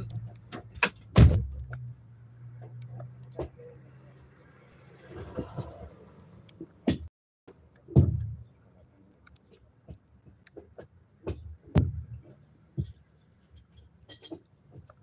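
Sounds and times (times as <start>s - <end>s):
dull knocks and thumps: 7.9s - 8.5s, 9.5s - 13.0s.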